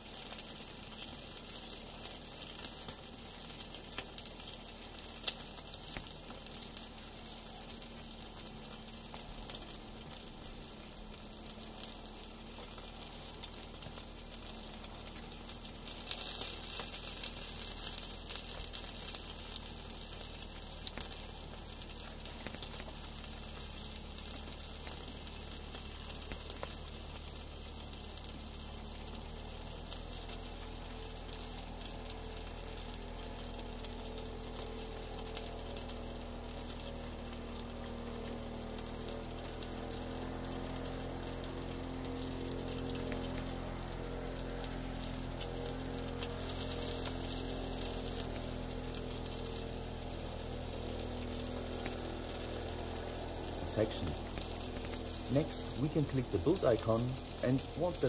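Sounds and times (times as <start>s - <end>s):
food sizzling in a pan: 0.0s - 58.0s.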